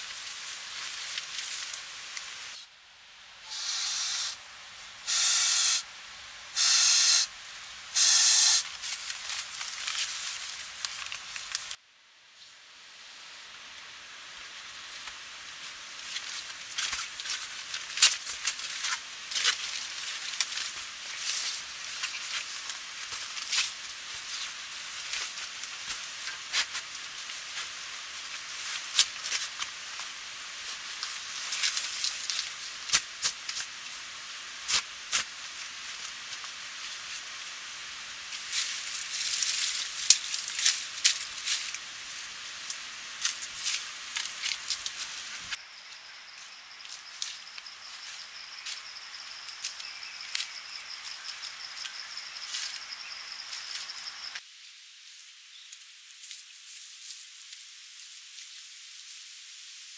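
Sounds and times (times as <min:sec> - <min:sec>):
hiss with crackles and snaps: 0:00.0 - 0:59.9
insects trilling: 0:38.4 - 0:59.2.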